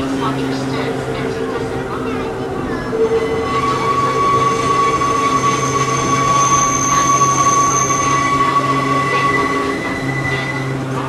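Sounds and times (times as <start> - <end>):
low train drone: 0.0 - 11.0
steel wheels squealing: 0.7 - 11.0.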